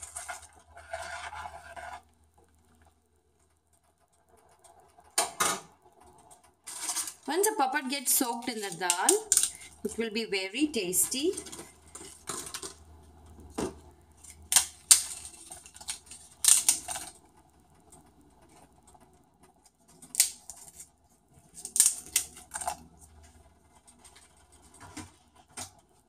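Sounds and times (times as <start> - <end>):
crisp papad crackling and crunching: 6.7 - 10.0, 14.2 - 17.2, 19.7 - 25.8.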